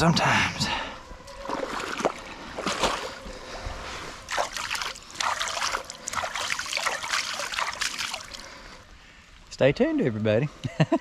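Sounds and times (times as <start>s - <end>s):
water splashing and trickling: 1.3s - 3.2s, 4.2s - 8.8s.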